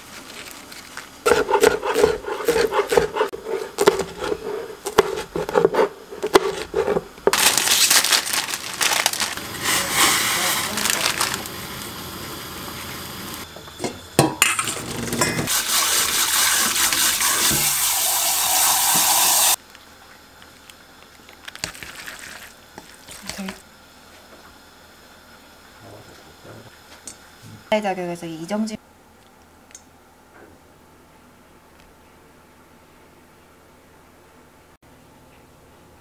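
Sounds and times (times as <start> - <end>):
knife chopping on cutting board: 1.3 - 7.1
tap water running into sieve: 15.5 - 19.6.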